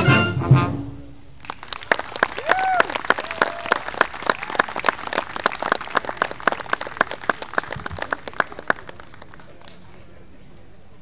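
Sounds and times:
audience applauding: 1.4 - 10.0.

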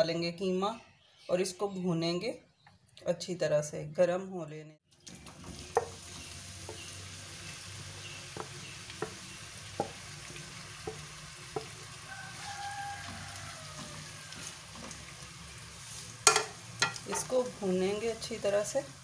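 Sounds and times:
meat sizzling in hot oil: 5.0 - 19.0
wooden spatula knocking on pot: 8.3 - 12.0.

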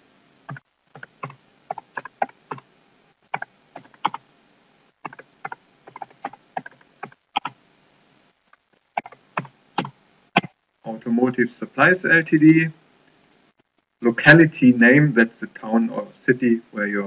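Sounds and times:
computer keyboard typing: 0.5 - 2.6, 3.3 - 4.2, 5.0 - 7.6, 9.0 - 10.5.

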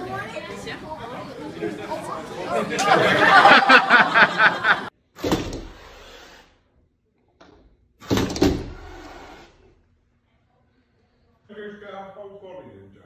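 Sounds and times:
chatter of voices: 0.0 - 4.9.

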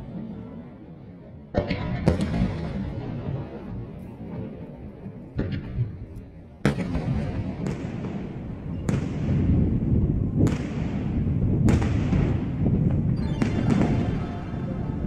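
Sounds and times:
fireworks bursting: 5.7 - 15.0.

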